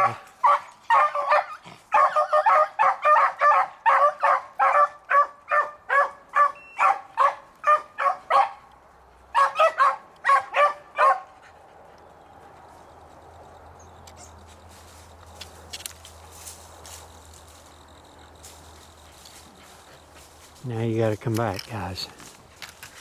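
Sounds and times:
beagles baying: 0:00.0 - 0:15.6.

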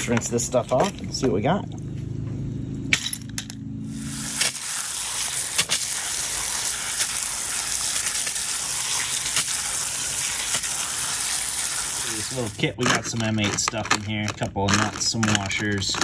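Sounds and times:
low hum: 0:00.1 - 0:05.1
metal parts clinking: 0:02.9 - 0:03.6, 0:12.3 - 0:16.0
hose spraying water: 0:03.9 - 0:12.7.

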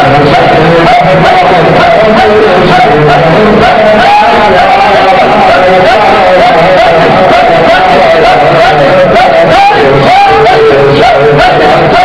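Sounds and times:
low repeating chant: 0:00.0 - 0:12.0
voice singing ornamented melody: 0:00.0 - 0:12.0.

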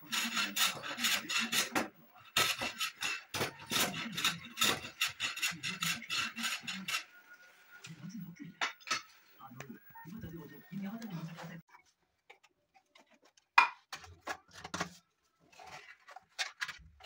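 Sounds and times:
hand plane shaving wood: 0:00.0 - 0:07.1.

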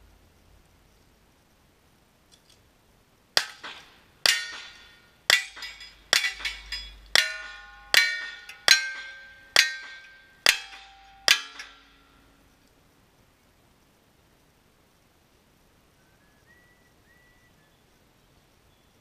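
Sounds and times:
steel target clanging: 0:03.4 - 0:12.4.

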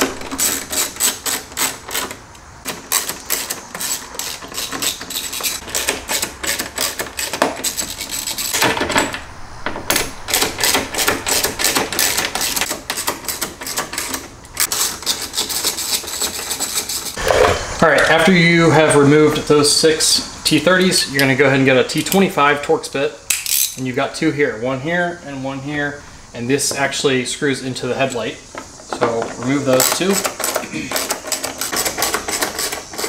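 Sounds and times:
ratchet clicking: 0:00.0 - 0:08.7.

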